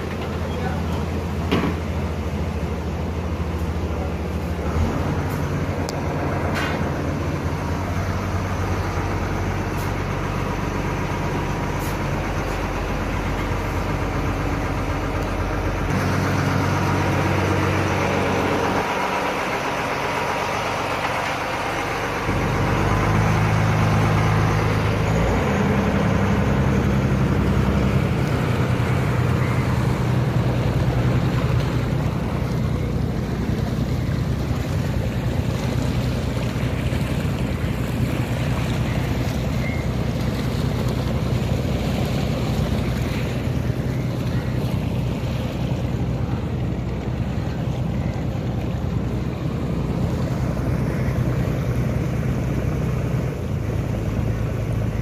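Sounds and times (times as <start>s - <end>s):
boat engine humming: 0.0s - 55.0s.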